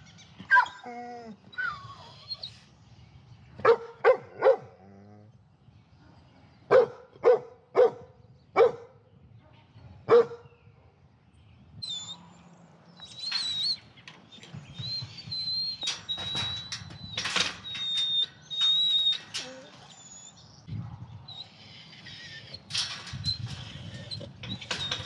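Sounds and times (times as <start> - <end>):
dog whining: 0.5 - 2.5, 14.8 - 20.4
dog barking: 3.6 - 4.8, 6.7 - 9.0, 10.1 - 10.4
wire gate knocks and rattles: 13.2 - 20.0, 22.6 - 25.0.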